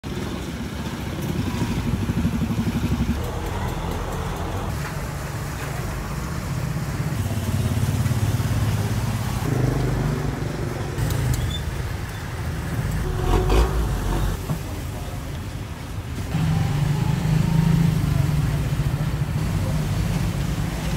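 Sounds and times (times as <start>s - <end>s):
vehicle engine running: 12.6s - 14.8s.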